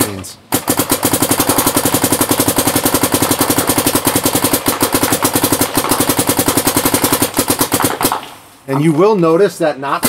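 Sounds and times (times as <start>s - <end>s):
paintball marker firing rapidly: 0.5s - 8.4s.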